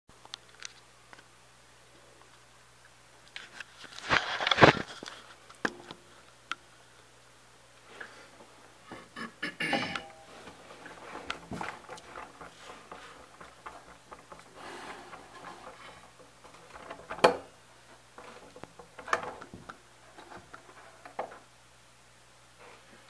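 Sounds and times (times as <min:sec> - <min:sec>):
handling rustling and clicks: 0:09.8 - 0:21.5.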